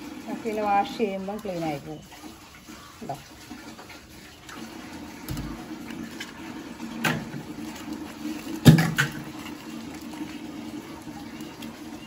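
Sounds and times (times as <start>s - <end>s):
tap water running: 0.0s - 12.0s.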